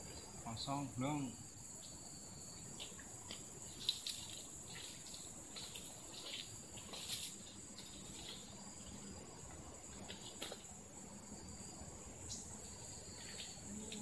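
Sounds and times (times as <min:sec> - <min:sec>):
high-pitched insect chorus: 0:00.0 - 0:14.0
footsteps rustling dry fronds: 0:02.8 - 0:08.6.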